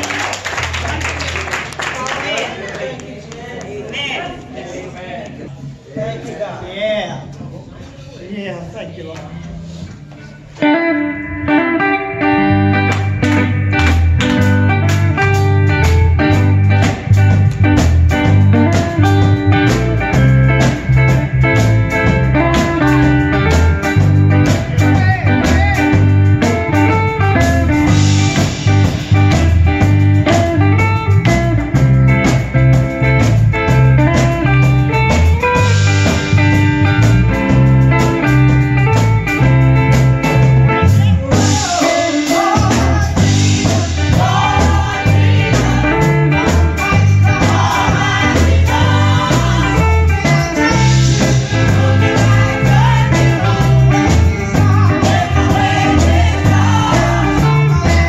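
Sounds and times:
live band instrumental groove: 0:08.6 - 0:58.0
electric guitar: 0:09.5 - 0:58.0
person singing: 0:41.0 - 0:58.0.

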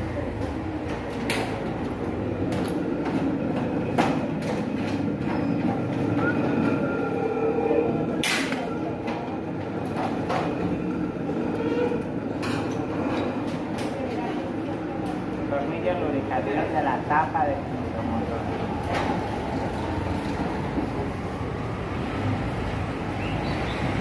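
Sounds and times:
steady rumbling background noise: 0:00.0 - 0:06.2.

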